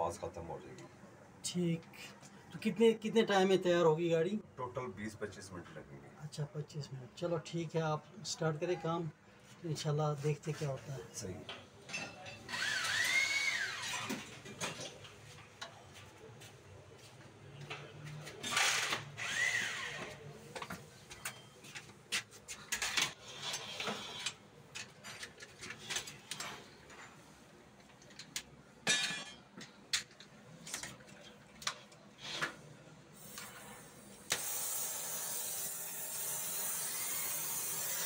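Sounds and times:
gas torch hissing: 33.2 - 38.0.

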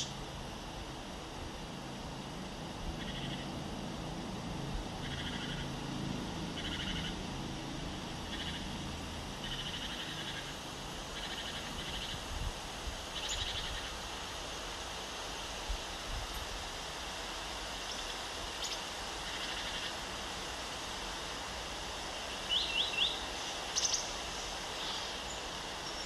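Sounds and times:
low background hum: 0.0 - 26.0
animal trilled calls: 3.0 - 3.5, 5.0 - 5.7, 6.6 - 7.2, 8.3 - 8.7.

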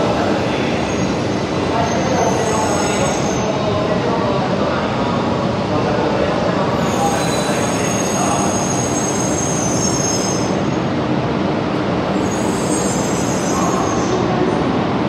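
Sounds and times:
high-pitched train squeal: 0.7 - 3.6, 6.7 - 10.8, 12.2 - 14.4.

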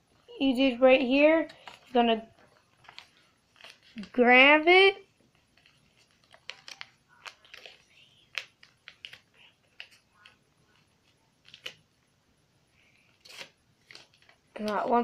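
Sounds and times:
paper crinkling: 1.2 - 12.0, 12.9 - 15.0.

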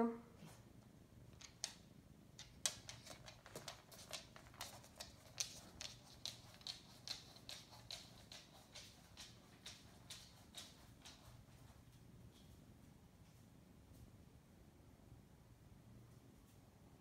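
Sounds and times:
dog claws clicking on wooden floor: 1.2 - 11.8.

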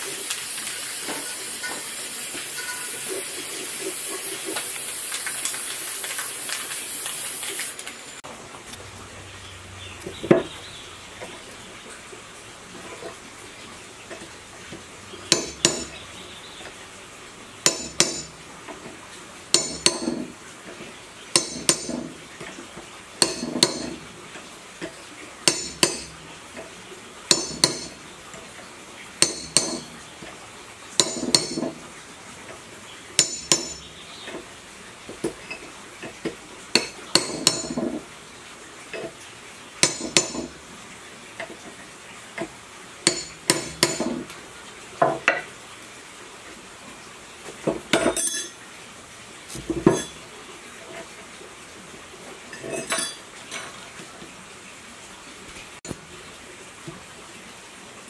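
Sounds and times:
hammer clanking on metal: 15.3 - 16.0, 17.6 - 18.4, 19.5 - 20.3, 21.3 - 22.2, 23.2 - 24.0, 25.5 - 26.2, 27.3 - 28.0, 29.2 - 30.0, 31.0 - 31.8, 33.2 - 33.9, 36.7 - 38.0, 39.8 - 40.6, 43.1 - 44.2, 47.7 - 48.6, 49.5 - 50.2.

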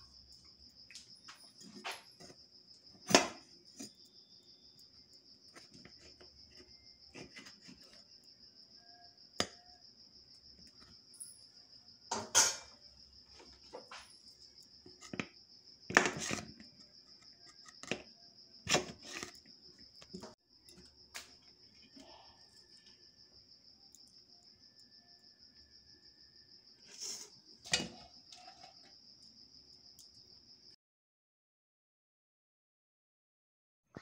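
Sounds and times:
crickets chirping: 0.0 - 30.8
metal pot and lid clanking: 12.1 - 12.8, 27.7 - 28.6.

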